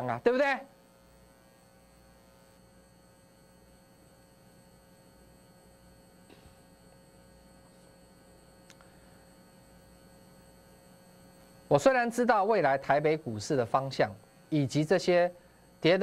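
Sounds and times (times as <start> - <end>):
faint electrical hum: 0.0 - 16.0
faint click: 8.6 - 8.9.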